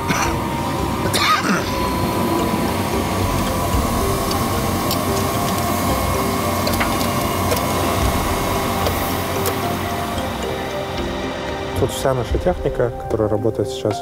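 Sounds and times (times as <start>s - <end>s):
farm machinery rumbling: 0.0s - 13.9s
machine whine: 0.0s - 14.0s.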